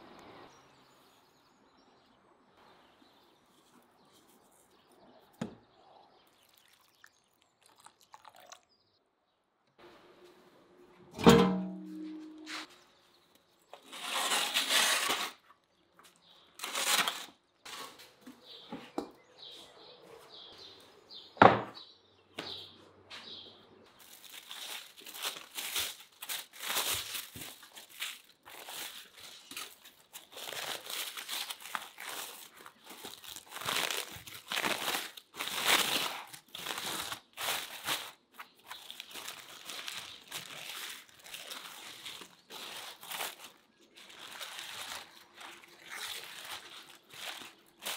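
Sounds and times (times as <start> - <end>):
metal pan scraping on brick: 11.2 - 12.7
aluminium foil crinkling: 16.6 - 18.0, 23.9 - 47.9.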